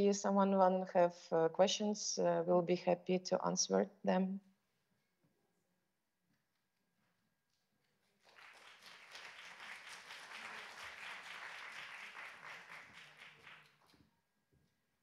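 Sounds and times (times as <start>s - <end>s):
audience applauding: 8.2s - 14.0s.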